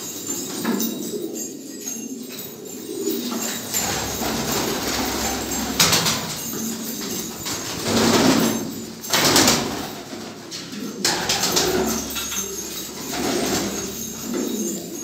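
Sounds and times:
pigeons cooing: 0:00.0 - 0:15.0
wing flapping: 0:03.3 - 0:15.0.

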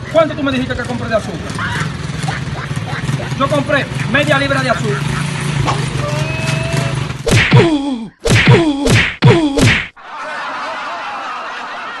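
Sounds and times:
punch smacks: 0:07.3 - 0:10.0
man crying out: 0:07.5 - 0:09.6.

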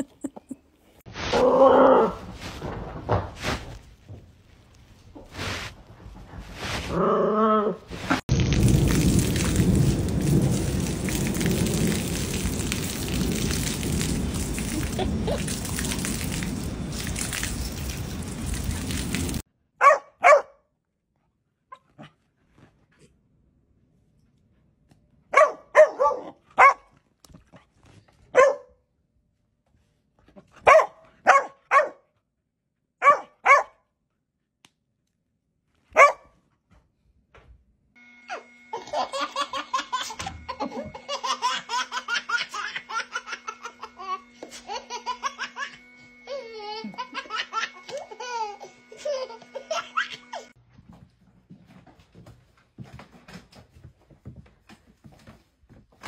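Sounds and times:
puppy barking: 0:19.8 - 0:20.6, 0:25.3 - 0:26.9, 0:28.3 - 0:28.8, 0:30.6 - 0:32.1, 0:33.0 - 0:33.8, 0:35.9 - 0:36.4
baby laughing and squealing: 0:38.7 - 0:50.5.

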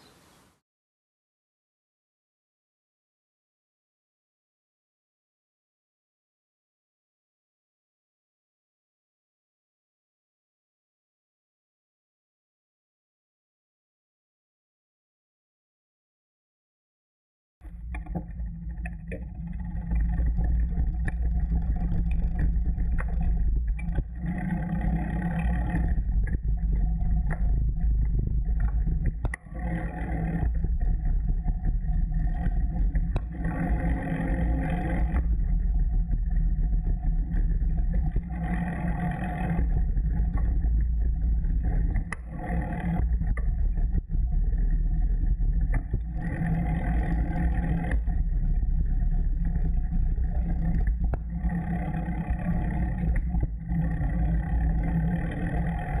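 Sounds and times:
wind rumble on microphone: 0:17.6 - 0:56.0.

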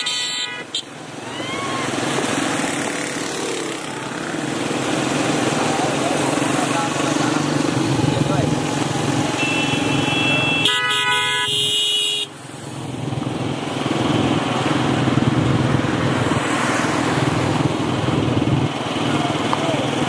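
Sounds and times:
vehicle horn: 0:00.0 - 0:00.9, 0:09.3 - 0:12.3
vehicle engine running: 0:02.0 - 0:10.1.

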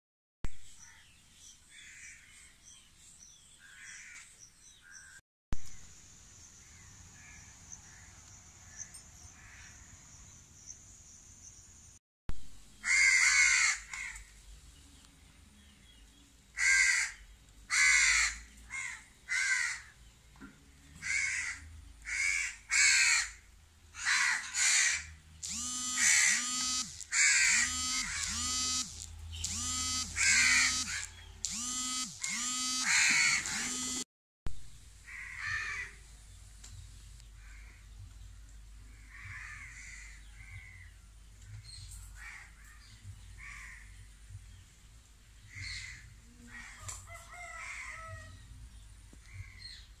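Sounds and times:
crows cawing loudly: 0:01.7 - 0:02.4, 0:03.6 - 0:04.3, 0:09.4 - 0:09.8, 0:12.8 - 0:14.3, 0:16.6 - 0:20.0, 0:21.0 - 0:25.2, 0:26.0 - 0:26.4, 0:27.1 - 0:28.7, 0:30.2 - 0:31.1, 0:32.8 - 0:33.9, 0:35.1 - 0:36.0, 0:39.0 - 0:40.9, 0:42.2 - 0:44.0, 0:45.5 - 0:48.4
faint distant bird calls: 0:21.0 - 0:34.0
steady high hum: 0:25.4 - 0:34.0.

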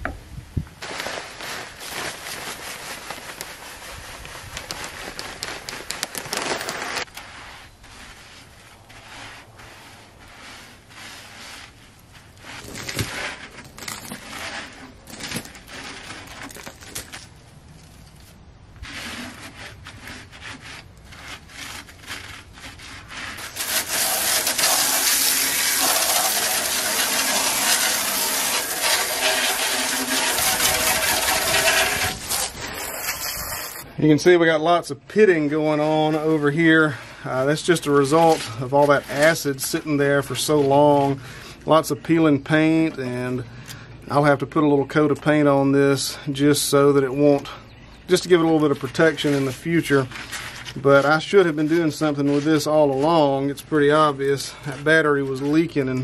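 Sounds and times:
hand scraping metal tray: 0:00.8 - 0:34.2, 0:35.2 - 0:43.4, 0:44.1 - 0:56.0
powder poured onto metal tray: 0:23.4 - 0:33.8
water jet hissing: 0:23.5 - 0:33.8.

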